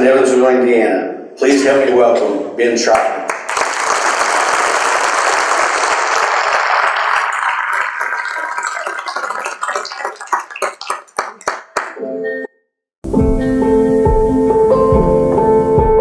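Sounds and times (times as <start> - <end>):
audience applause: 3.3 - 12.0.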